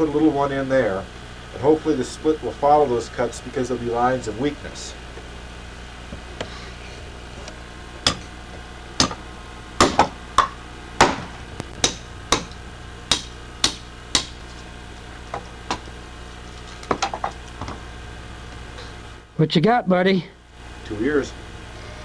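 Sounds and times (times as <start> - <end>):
hand tool striking hard wood: 9.0 - 9.2, 9.8 - 12.5, 13.1 - 14.4.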